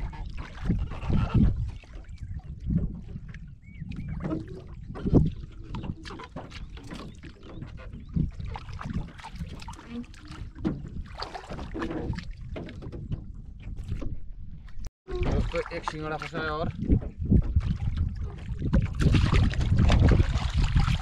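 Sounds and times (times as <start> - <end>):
low rumble of wind and water: 0.0 - 21.0.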